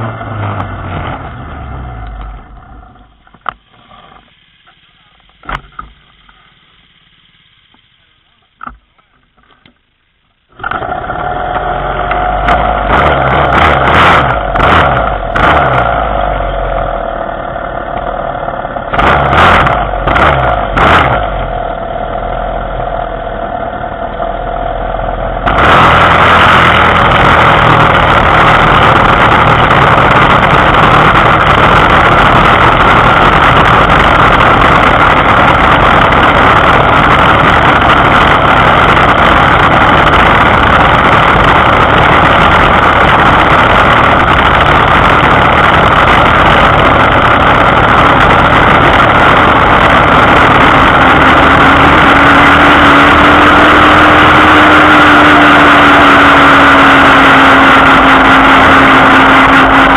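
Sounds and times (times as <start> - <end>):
small motorbike engine running: 10.5 - 59.9
wind noise on microphone: 25.4 - 59.9.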